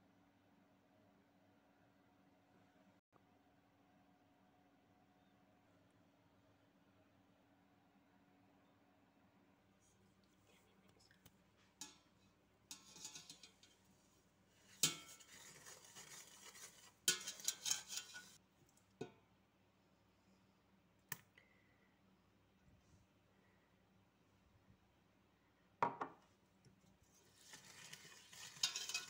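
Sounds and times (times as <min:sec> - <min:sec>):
whisk scraping metal bowl: 0:12.7 - 0:13.9, 0:14.6 - 0:18.4, 0:27.0 - 0:29.0.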